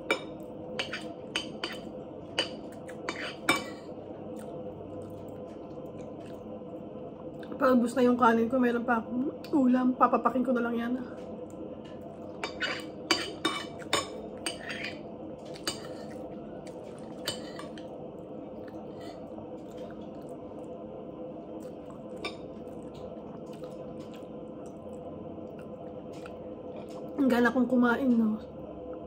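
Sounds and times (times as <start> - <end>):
steady low hum: 0.0 - 29.0
cutlery clinking on a plate: 0.1 - 1.8, 12.4 - 16.2.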